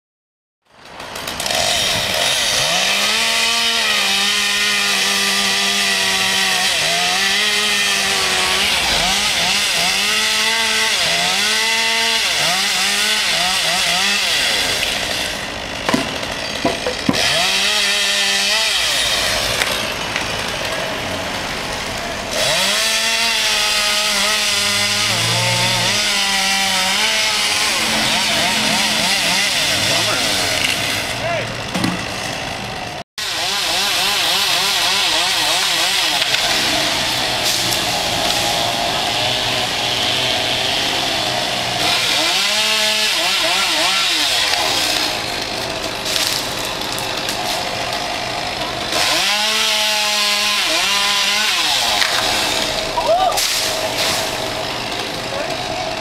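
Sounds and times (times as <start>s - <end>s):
chainsaw cutting and revving: 0.7s - 56.0s
sharp knocks: 15.8s - 17.3s, 31.7s - 32.1s.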